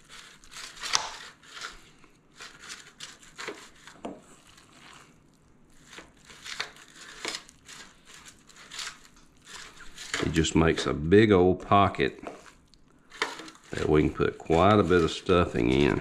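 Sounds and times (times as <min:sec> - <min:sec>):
aluminum pan crackling: 0:05.7 - 0:16.0.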